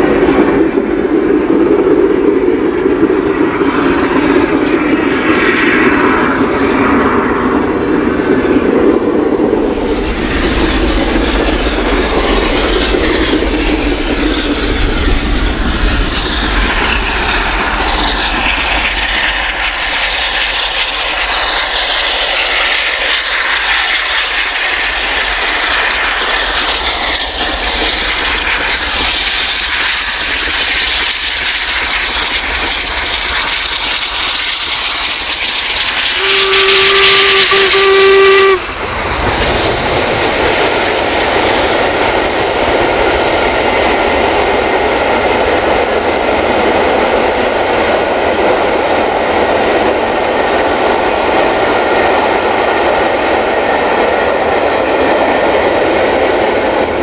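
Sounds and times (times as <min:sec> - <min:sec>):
train wheels on rails: 0:00.0 - 0:57.0
steam locomotive hissing: 0:09.4 - 0:48.8
steam whistle: 0:36.0 - 0:38.9.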